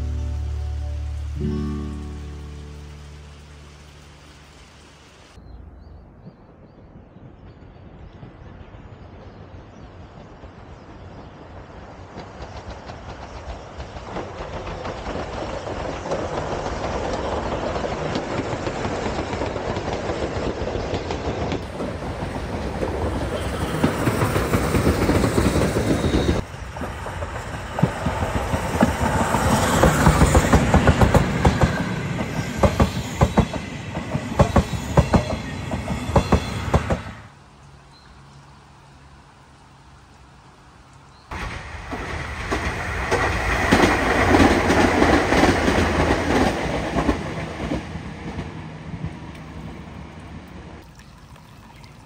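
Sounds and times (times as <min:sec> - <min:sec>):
steam train running past: 0:00.0 - 0:05.4, 0:06.9 - 0:37.5, 0:41.3 - 0:50.8
wheels clacking over rail joints: 0:12.0 - 0:37.2, 0:41.3 - 0:50.8.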